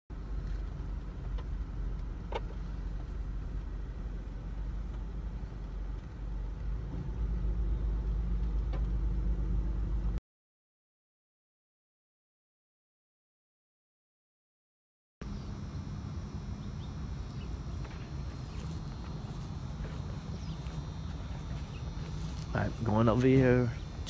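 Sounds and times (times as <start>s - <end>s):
road traffic rumble: 0.1s - 10.2s, 15.2s - 24.0s.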